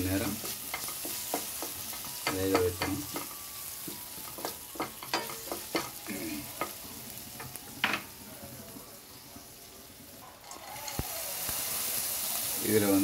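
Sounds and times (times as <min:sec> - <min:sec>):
spatula scraping a pan: 0:00.0 - 0:03.3
spices sizzling in oil: 0:00.0 - 0:13.0.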